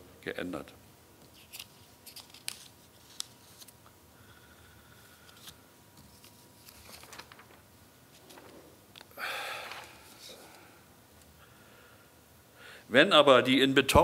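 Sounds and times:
faint steady hum: 0.0 - 14.0
hands rustling: 6.0 - 10.6.

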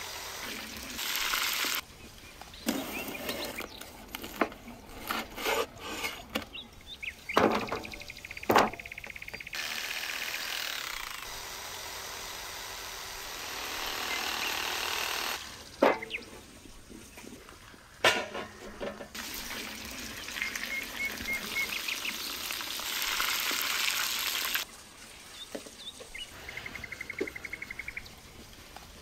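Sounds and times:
bones knocking and scraping: 2.6 - 6.6.

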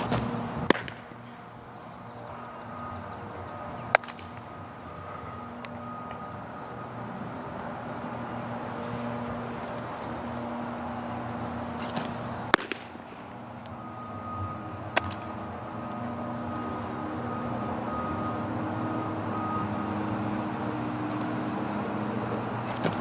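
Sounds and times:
sharp cracks: 0.0 - 1.2, 3.9 - 4.6, 11.8 - 13.8, 14.9 - 15.3
outdoor background hum: 0.0 - 23.0.

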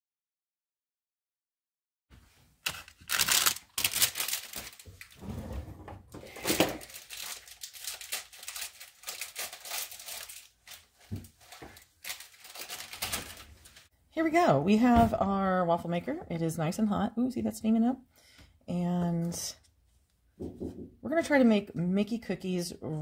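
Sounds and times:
plastic package crinkling and tearing: 2.6 - 5.2, 6.3 - 13.9.

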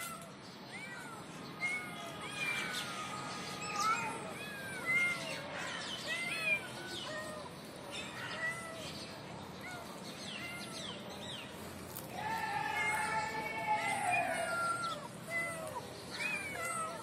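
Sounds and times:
kittens mewing: 0.0 - 8.9, 12.3 - 17.0.

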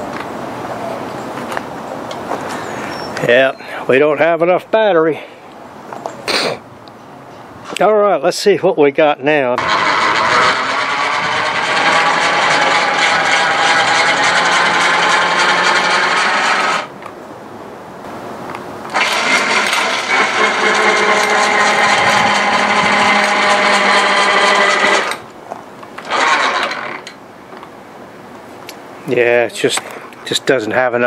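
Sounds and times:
electric winch whining: 9.6 - 17.0, 18.9 - 25.3, 26.0 - 27.2.

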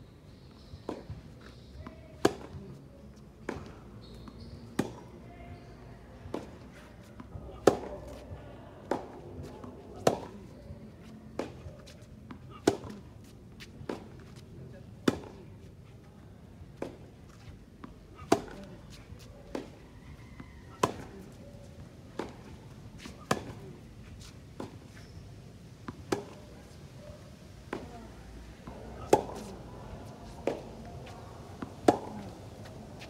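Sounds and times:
tennis ball hit by rackets: 0.8 - 2.8, 3.4 - 5.7, 6.3 - 14.4, 15.0 - 15.5, 16.7 - 19.8, 20.7 - 21.4, 22.2 - 25.2, 25.8 - 26.5, 28.6 - 33.0.

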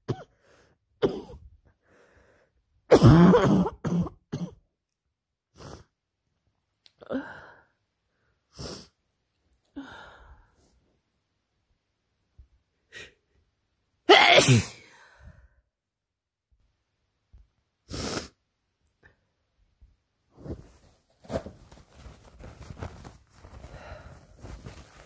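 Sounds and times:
person sneezing: 14.1 - 15.0.

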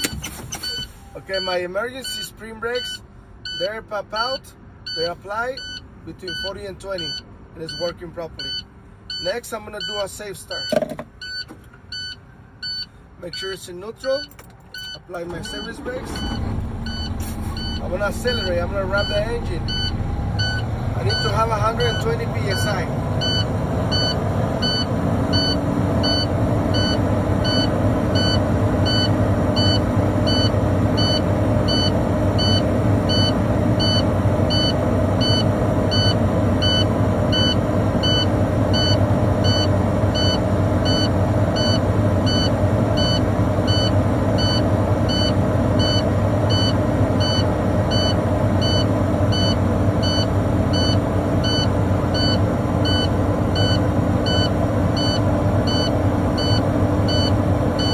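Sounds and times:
diesel truck engine revving: 14.8 - 57.9.

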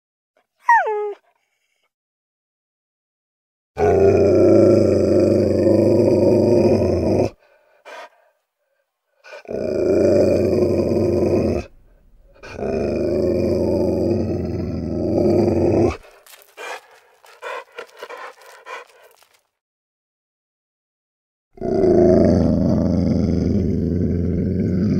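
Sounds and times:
dog growling: 3.8 - 8.1, 9.2 - 19.4, 21.6 - 24.9.

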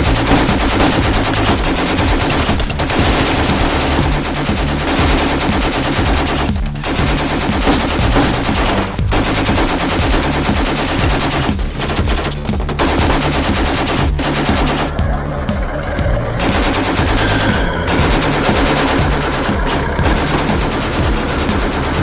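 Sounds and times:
automatic rifle fire: 0.0 - 11.6, 16.4 - 22.0.

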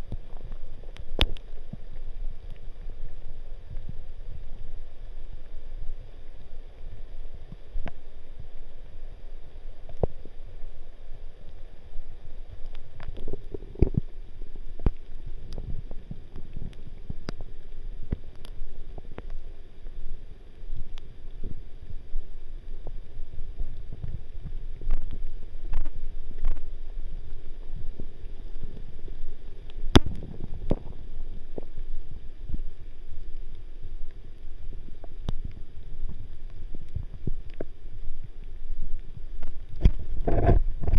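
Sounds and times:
wind rumble on microphone: 0.0 - 5.1, 12.6 - 19.2, 20.8 - 33.5, 34.3 - 40.9
rain: 0.0 - 40.9.

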